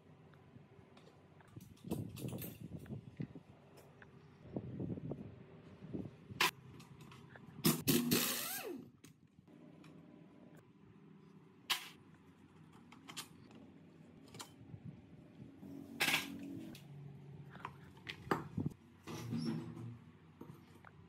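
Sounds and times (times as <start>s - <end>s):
metal clinks and scrapes: 1.6s - 2.9s.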